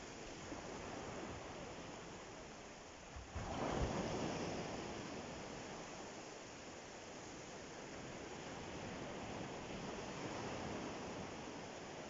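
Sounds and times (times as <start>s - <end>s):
waves washing onto pebbles: 3.2s - 6.3s.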